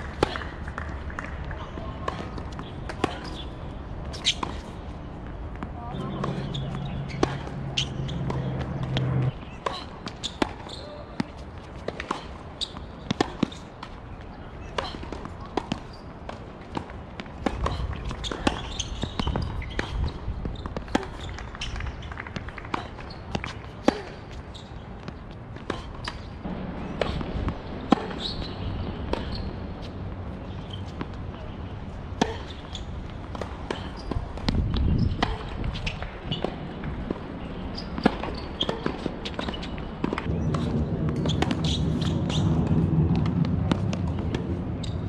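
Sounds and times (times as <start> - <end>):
steady low rumble: 4.7 - 9.6, 26.3 - 32.3, 39.9 - 45.0.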